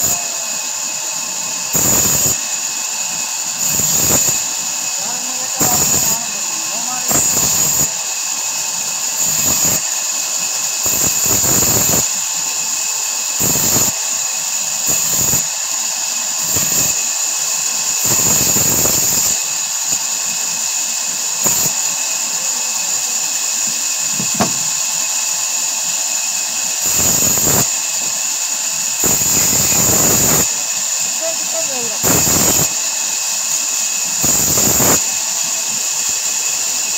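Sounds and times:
band saw humming: 0.0 - 11.8, 21.7 - 36.9.

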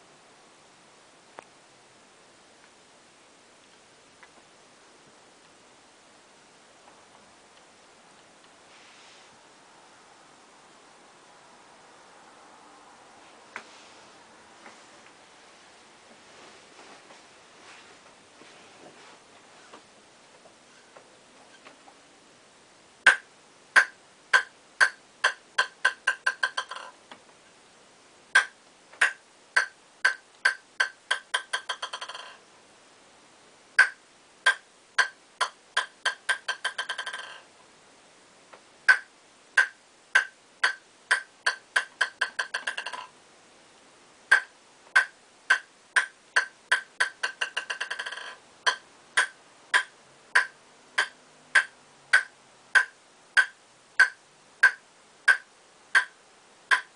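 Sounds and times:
ping-pong ball bouncing on paddle: 23.1 - 26.9, 28.4 - 32.4, 33.8 - 37.4, 38.9 - 43.1, 44.3 - 56.9.

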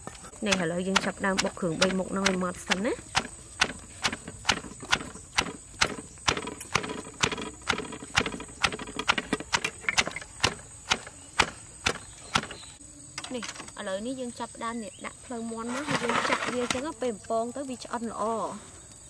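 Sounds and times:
mortar and pestle pounding: 0.4 - 12.6.

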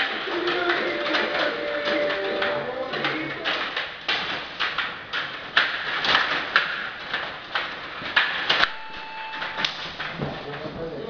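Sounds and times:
table hockey clattering: 0.0 - 10.8
short steady tone: 8.7 - 10.0.

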